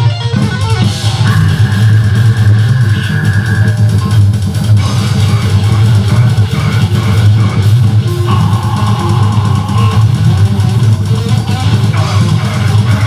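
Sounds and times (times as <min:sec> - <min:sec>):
metal band playing live: 0:00.0 - 0:13.0.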